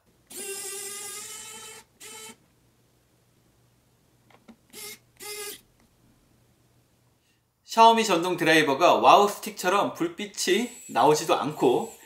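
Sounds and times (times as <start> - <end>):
electric screwdriver motor whining: 0.3 - 2.4, 4.7 - 5.6, 10.6 - 12.0.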